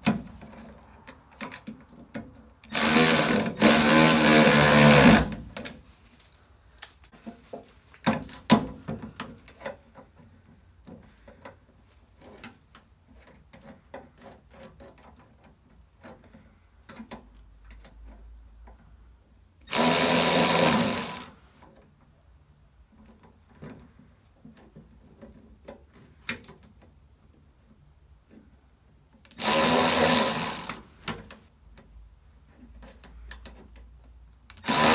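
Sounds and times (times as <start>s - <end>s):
hand ratchet clicking: 2.6s - 5.4s, 19.7s - 21.3s, 29.4s - 31.2s, 34.6s - 34.9s
cordless power driver running: 2.7s - 5.3s, 19.7s - 21.3s, 29.4s - 30.8s, 34.6s - 34.9s.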